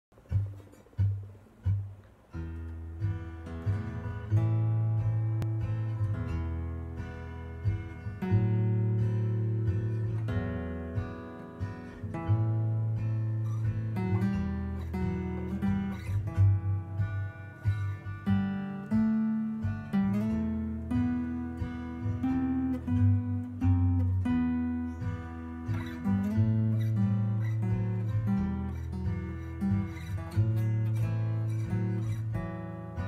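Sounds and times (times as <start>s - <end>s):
acoustic guitar playing: 0.1s - 33.0s.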